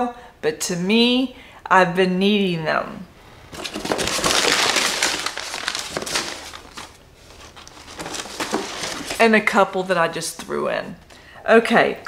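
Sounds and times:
packaging crinkling and rustling: 0:03.4 - 0:09.6.

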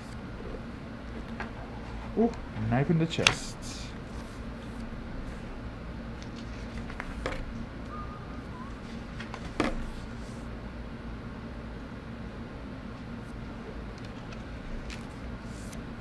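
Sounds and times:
steady low hum: 0:00.0 - 0:16.0
book pages turning: 0:06.2 - 0:07.4, 0:14.0 - 0:15.8.

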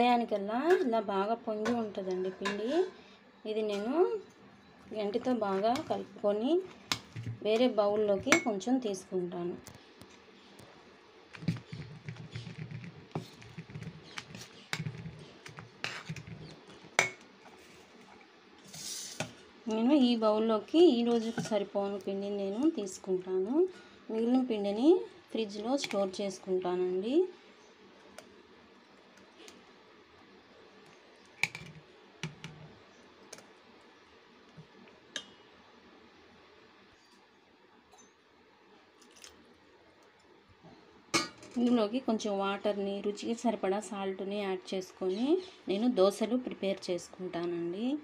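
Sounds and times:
spoon stirring thick batter: 0:11.3 - 0:18.2.

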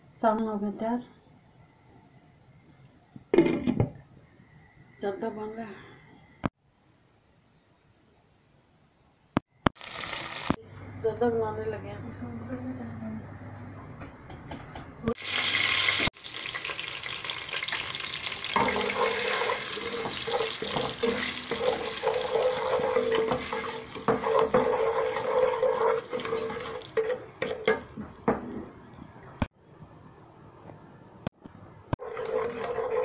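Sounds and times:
spices sizzling in hot oil: 0:09.6 - 0:10.6, 0:15.2 - 0:27.1.

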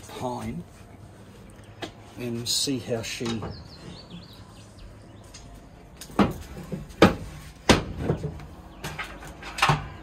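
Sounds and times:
knocks and thumps on wood: 0:06.1 - 0:09.0.

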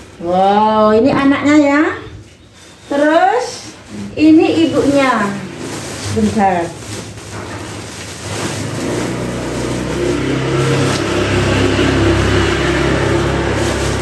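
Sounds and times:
plastic sack rustling: 0:00.0 - 0:14.0
vehicle engine running: 0:07.2 - 0:14.0.

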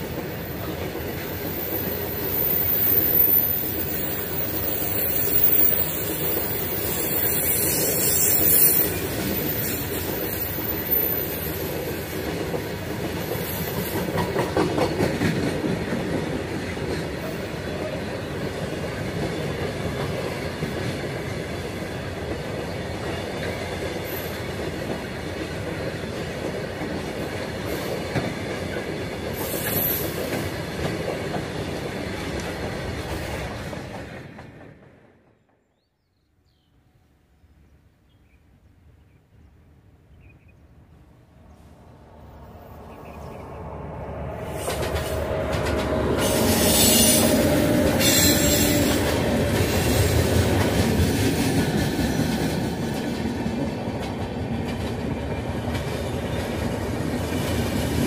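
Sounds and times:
passenger coaches rolling past: 0:00.0 - 0:35.6, 0:39.4 - 0:58.0
shrill wheel squeal: 0:01.7 - 0:11.4, 0:46.2 - 0:47.4, 0:48.0 - 0:49.0
train wheels clattering over rail joints: 0:08.2 - 0:17.4, 0:44.5 - 0:58.0.

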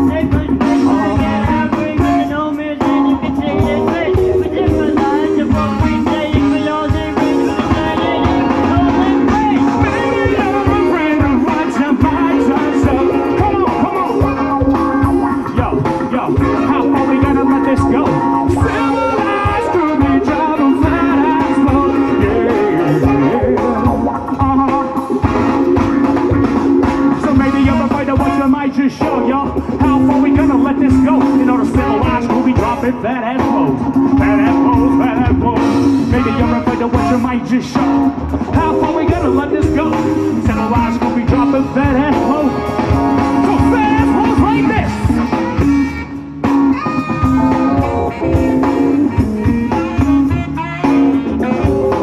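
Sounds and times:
drums steady beat: 0:00.0 - 0:52.0
electric guitar: 0:00.0 - 0:52.0
horn section: 0:00.0 - 0:52.0
live band playing loudly: 0:00.0 - 0:52.0
horn section held notes: 0:41.5 - 0:51.8.

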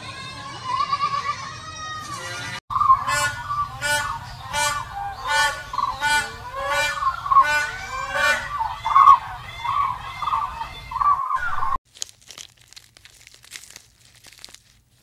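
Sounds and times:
waterfowl honking: 0:02.7 - 0:11.8.

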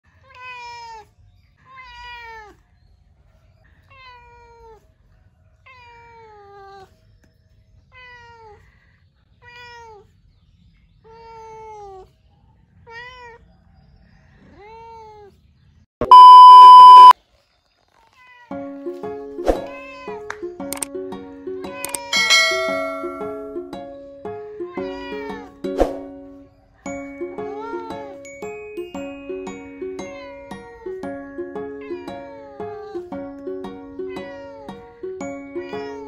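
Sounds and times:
cat meowing: 0:00.3 - 0:01.1, 0:01.7 - 0:02.6, 0:12.8 - 0:13.5, 0:24.7 - 0:25.5, 0:34.1 - 0:34.8, 0:35.5 - 0:36.0
loud steady beep: 0:16.0 - 0:17.2.

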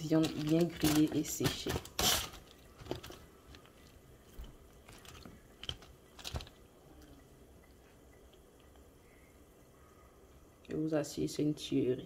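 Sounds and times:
aluminium foil crackling: 0:00.0 - 0:07.2.

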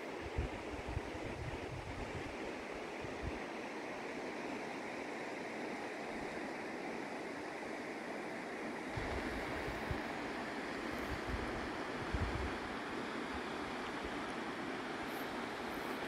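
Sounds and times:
wind buffeting microphone: 0:10.9 - 0:12.7.

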